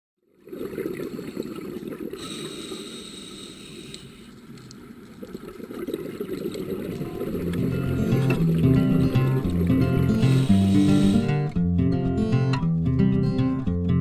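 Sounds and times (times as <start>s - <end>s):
churning underwater bubbling: 0.3s - 2.3s, 4.4s - 11.5s.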